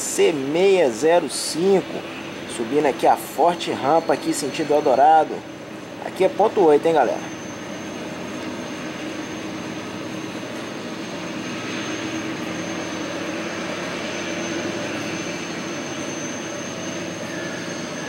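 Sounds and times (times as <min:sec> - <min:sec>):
diesel locomotives working hard: 0:00.0 - 0:18.0.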